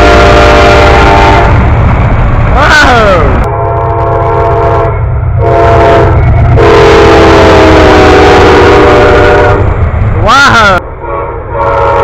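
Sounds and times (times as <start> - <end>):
locomotive air horn blasts: 0.0 - 1.6, 3.4 - 9.7, 11.0 - 12.0
steady low rumble: 0.0 - 12.0.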